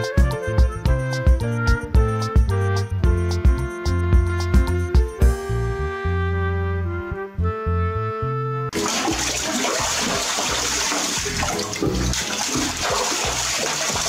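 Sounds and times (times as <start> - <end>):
background music with low beat: 0.0 - 6.3, 10.5 - 14.0
music with held woodwind notes: 0.0 - 8.8
water splashing in tub: 8.7 - 14.0.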